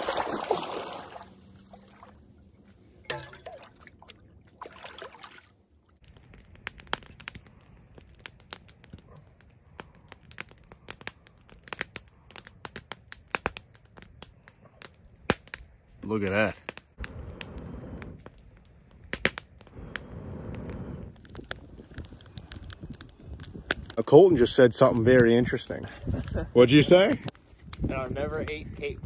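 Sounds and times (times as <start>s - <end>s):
water splashing: 0.0s - 6.0s
campfire crackling and popping: 0.0s - 29.0s.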